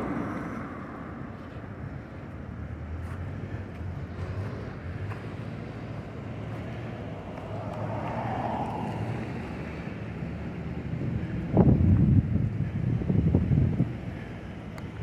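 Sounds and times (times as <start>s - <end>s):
traffic rumble: 0.0s - 15.0s
wind on microphone: 11.0s - 14.2s.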